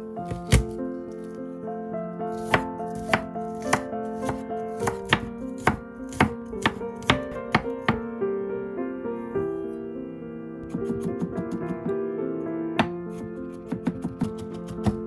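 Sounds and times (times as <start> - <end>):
soft piano music: 0.0 - 15.0
knife chopping on wooden board: 0.3 - 0.8, 2.4 - 8.0, 12.8 - 15.0.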